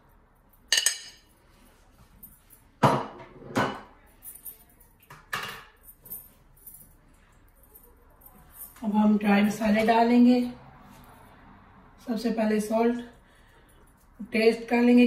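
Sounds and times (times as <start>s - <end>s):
spoon clinking on ceramic plate: 0.7s - 1.3s
dishes knocked and set down: 2.8s - 3.9s, 5.1s - 5.8s.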